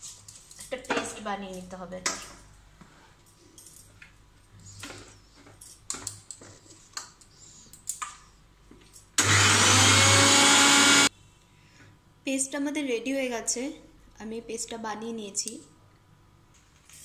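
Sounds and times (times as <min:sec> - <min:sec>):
mixer grinder motor grinding: 0:09.2 - 0:11.1.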